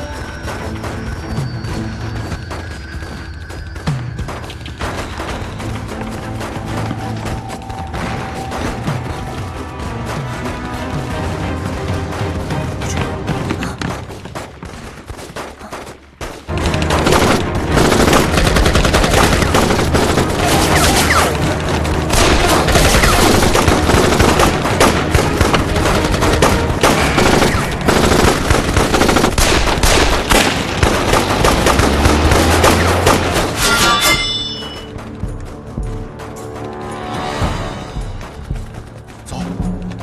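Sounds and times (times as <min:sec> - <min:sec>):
rapid gunfire: 0:15.4 - 0:33.6.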